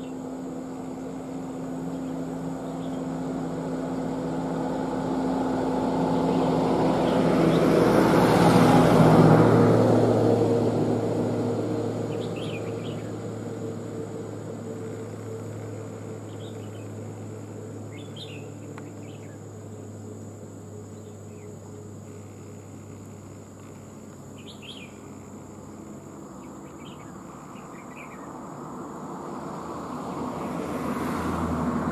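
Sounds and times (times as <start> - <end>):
motor engine passing by: 0.0 - 20.2, 20.8 - 31.9
bird chirps: 12.1 - 13.1, 17.9 - 19.4, 24.3 - 25.2, 26.4 - 28.3.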